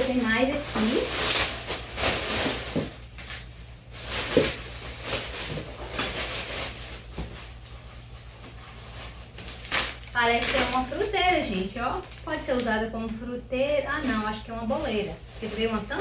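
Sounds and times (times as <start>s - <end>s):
packaging rustling: 0.0s - 12.7s, 14.0s - 16.0s.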